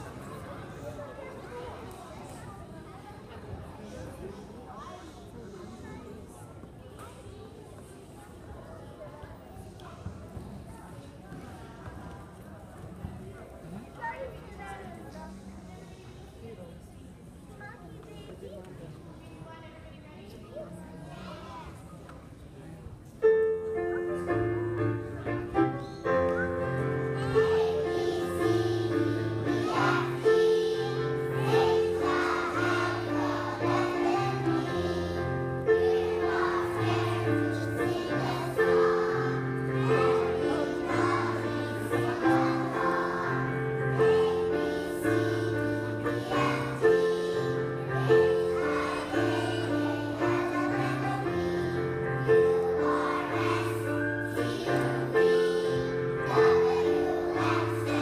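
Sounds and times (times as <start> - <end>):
children's choir singing: 0.0 - 1.1, 24.2 - 58.0.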